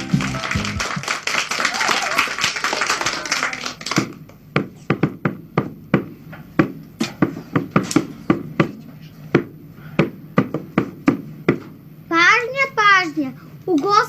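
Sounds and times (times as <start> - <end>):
background music: 0.0 - 1.0
small drum beats: 4.5 - 11.8.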